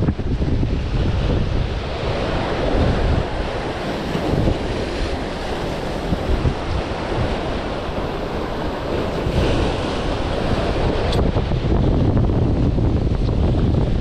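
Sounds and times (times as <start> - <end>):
waves breaking against rocks: 0.0 - 14.0
wind buffeting microphone: 0.0 - 14.0.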